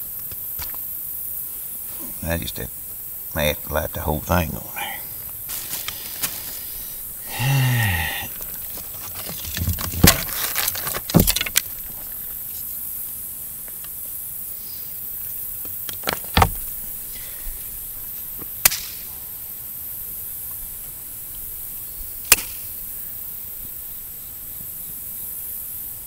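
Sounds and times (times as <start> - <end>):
faint hiss: 0.0 - 26.0.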